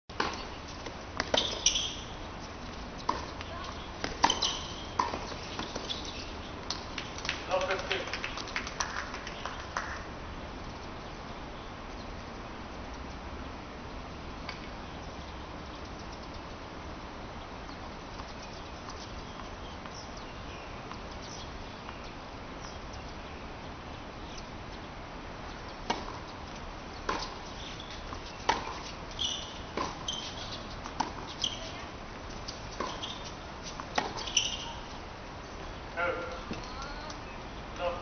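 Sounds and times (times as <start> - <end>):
steady background hiss: 0.1 - 38.0
tennis ball hitting racket: 0.2 - 2.0, 3.0 - 6.0, 25.8 - 26.2, 27.0 - 27.4, 28.0 - 31.3, 32.5 - 34.8.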